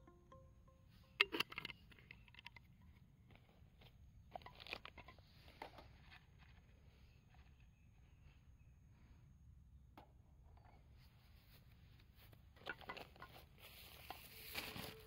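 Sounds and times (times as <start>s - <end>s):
metal mess tin clicking and scraping: 1.1s - 3.5s, 12.6s - 15.0s.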